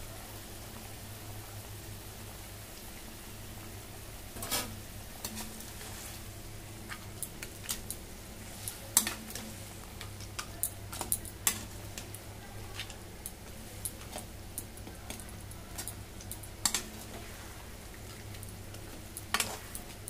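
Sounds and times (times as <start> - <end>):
curry simmering and sizzling: 0.0 - 20.0
metal spatula scraping a pan: 4.4 - 6.2.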